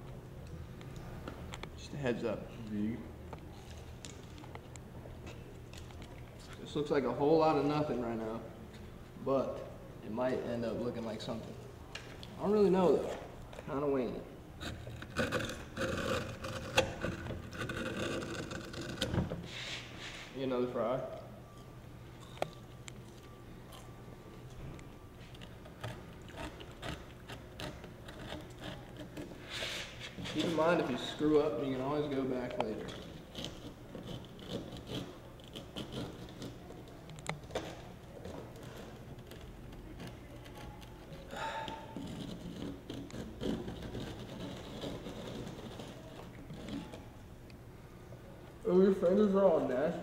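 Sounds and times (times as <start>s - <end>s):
razor blade scraping grip tape: 14.6s - 19.9s, 25.4s - 31.3s, 32.6s - 47.0s.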